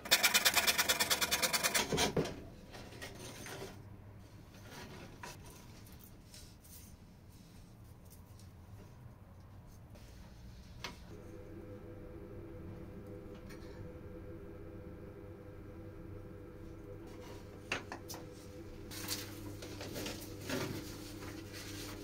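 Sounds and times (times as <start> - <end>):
low steady hum: 10.6 - 22.0.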